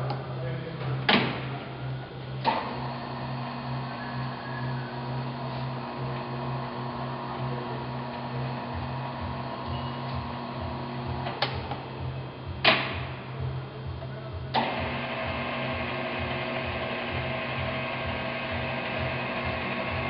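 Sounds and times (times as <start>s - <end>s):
lathe gears whirring: 2.4s - 20.0s.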